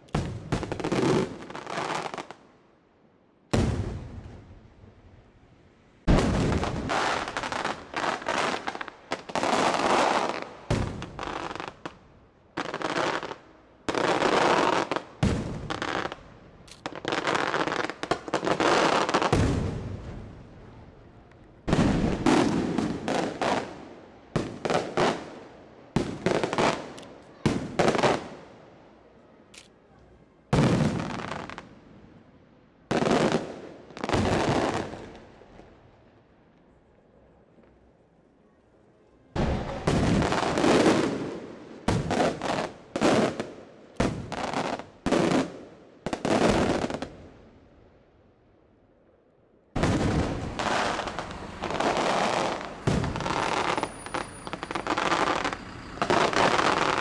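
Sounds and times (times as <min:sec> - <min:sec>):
firework shells exploding: 0:49.8 - 0:57.0.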